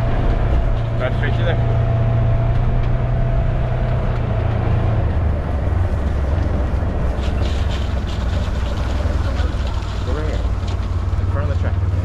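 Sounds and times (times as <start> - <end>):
diesel tractor engine running: 0.0 - 12.0
short clatters: 5.6 - 11.9.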